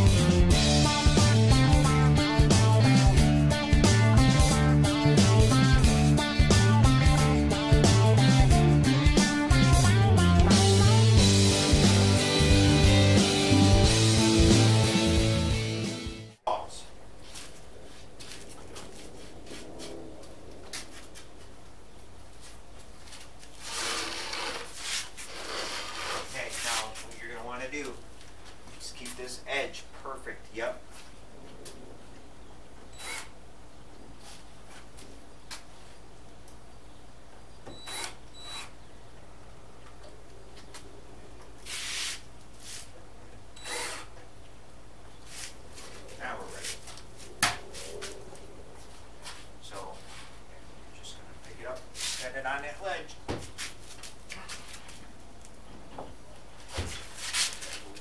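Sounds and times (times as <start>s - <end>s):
plywood panel scraping: 23.4s - 27.1s
cordless drill into plywood: 23.6s - 26.2s, 33.0s - 33.3s, 37.8s - 38.7s, 43.6s - 44.1s.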